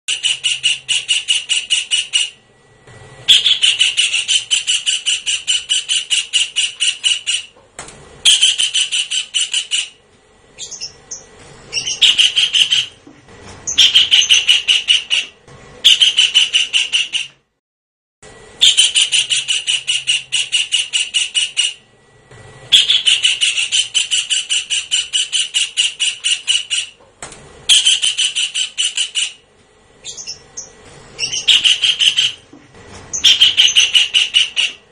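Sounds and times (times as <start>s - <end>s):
kingfisher calling: 0.1s - 2.4s, 3.3s - 7.5s, 8.2s - 10.0s, 10.6s - 13.0s, 13.7s - 17.3s, 18.6s - 21.8s, 22.7s - 27.0s, 27.7s - 29.4s, 30.0s - 32.5s, 33.1s - 34.8s.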